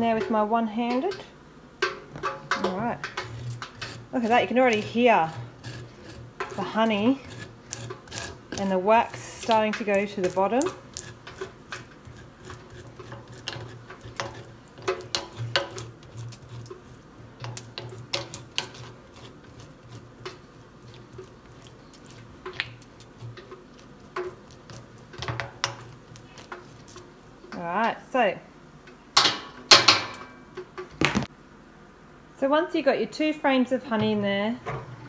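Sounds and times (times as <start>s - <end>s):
metal tines scraping wax: 2.2s - 28.1s.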